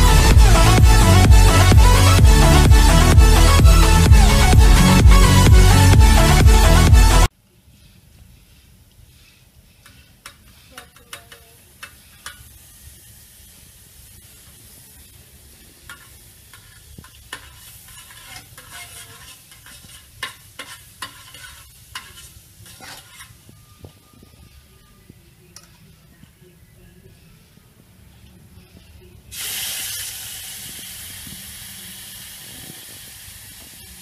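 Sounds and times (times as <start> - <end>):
metal tongs scraping pan: 9.8 - 12.5, 15.8 - 23.5
butter sizzling in frying pan: 11.0 - 23.5, 29.4 - 34.0.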